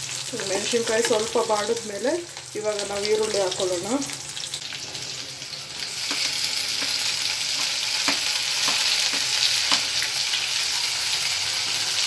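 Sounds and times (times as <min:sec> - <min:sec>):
onions sizzling in hot oil: 0:00.0 - 0:12.0
spoon knocking on pan: 0:06.0 - 0:10.1.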